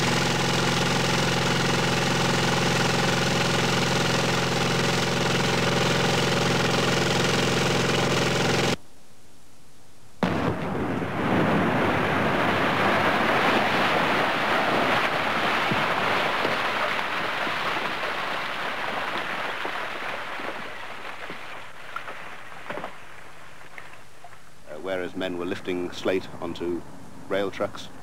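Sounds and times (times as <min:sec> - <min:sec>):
rumble of cascading slate: 0:10.3 - 0:22.9.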